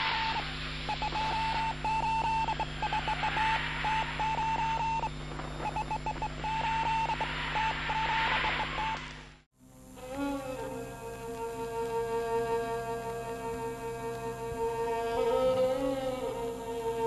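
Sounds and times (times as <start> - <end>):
radio static hiss: 0.0 - 9.4
low hum: 0.0 - 17.0
morse code beeps: 0.9 - 9.0.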